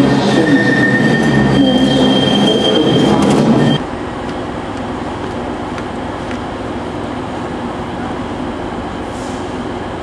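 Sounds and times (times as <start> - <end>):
train wheels squealing on rails: 0.0 - 3.8
train rumbling: 0.0 - 10.0.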